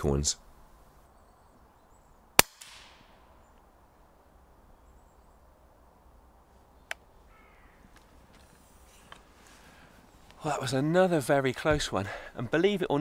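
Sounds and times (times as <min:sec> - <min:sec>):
faint woodland ambience: 0:00.0 - 0:13.0
bird call: 0:06.8 - 0:08.0.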